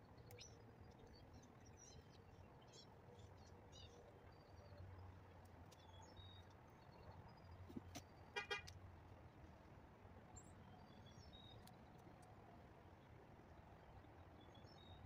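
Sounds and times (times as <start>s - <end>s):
car horn double toot: 8.4s - 8.7s.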